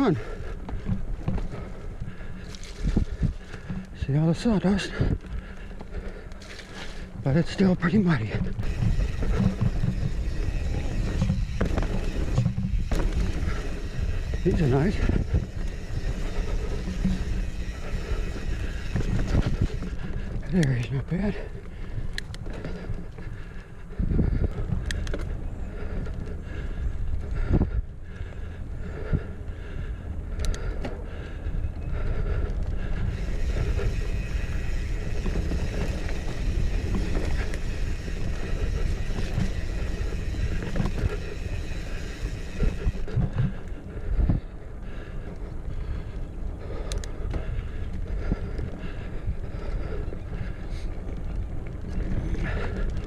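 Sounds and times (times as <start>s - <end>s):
bike tyres rumbling on dirt: 0.0s - 53.0s
wind buffeting microphone: 0.0s - 53.0s
bike clicks and knocks: 7.9s - 21.0s, 24.4s - 25.4s.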